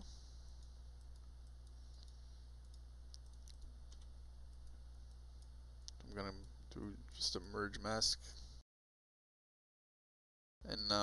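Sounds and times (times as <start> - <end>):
steady low hum: 0.0 - 8.6
keyboard and mouse clicks: 1.0 - 6.5.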